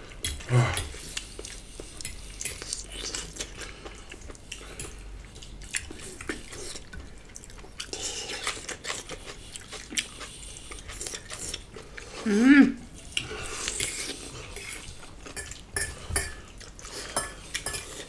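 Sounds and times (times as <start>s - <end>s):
soft eating sounds: 0.0s - 18.0s
fork scraping against plate: 13.1s - 18.0s.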